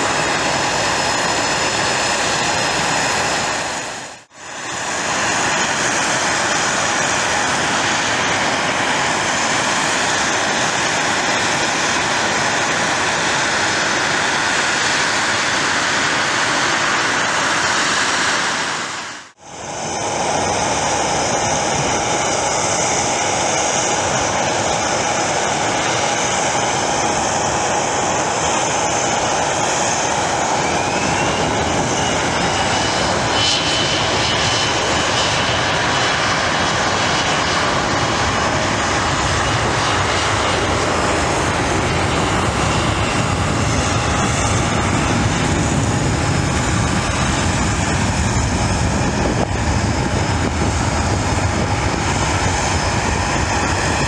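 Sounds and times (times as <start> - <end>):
jet engines whining: 0.0 - 54.0
rising whine: 27.2 - 54.0.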